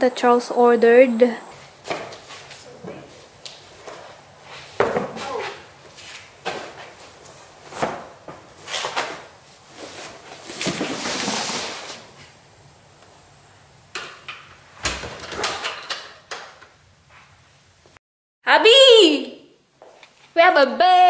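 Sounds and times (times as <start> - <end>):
cardboard box scraping on floor: 9.7 - 12.3
front door shutting: 14.8 - 16.6.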